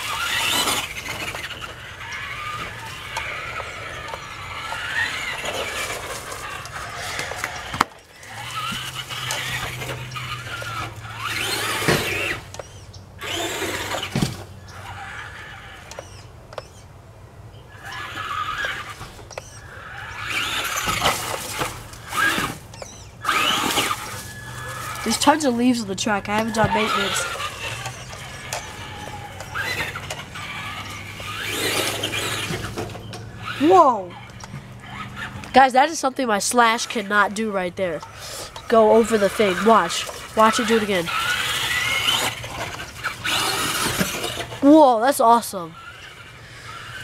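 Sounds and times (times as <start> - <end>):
rc truck electric motor whining: 0.0 - 16.9, 17.5 - 47.0
tyres running over dirt and leaves: 0.0 - 16.9, 17.6 - 47.0.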